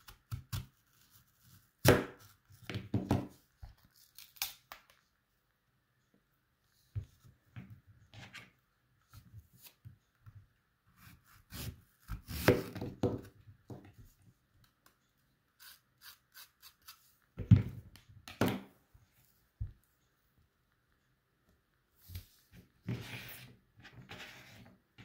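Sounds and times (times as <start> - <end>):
knife cutting through apple: 11.0 - 13.3.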